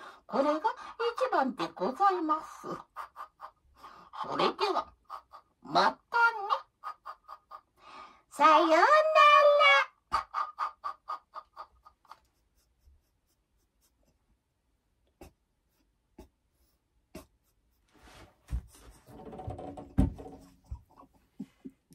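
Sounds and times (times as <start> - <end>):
rustling and rubbing on device: 12.0 - 14.3, 15.6 - 21.6
dull thumps: 18.4 - 21.0.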